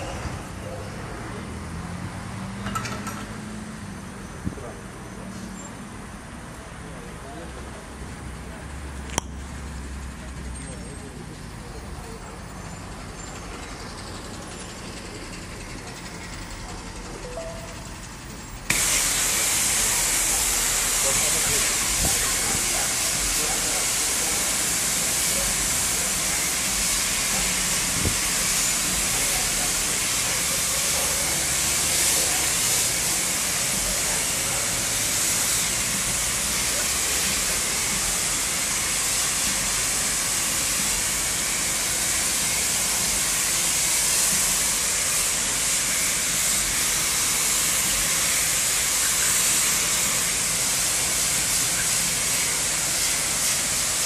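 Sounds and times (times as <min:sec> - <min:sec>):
pressure washer spraying: 0:18.6 - 0:54.0.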